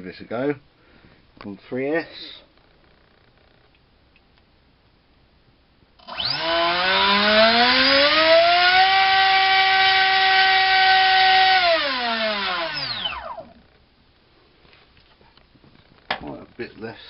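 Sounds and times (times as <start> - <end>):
electric motor propeller whine: 6.0 - 13.6.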